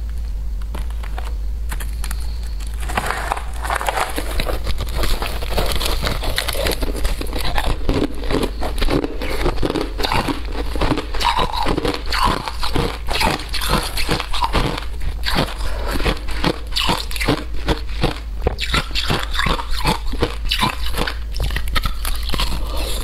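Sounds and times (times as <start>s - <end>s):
steady low hum: 0.0s - 23.0s
person chewing crunchy ice: 0.8s - 23.0s.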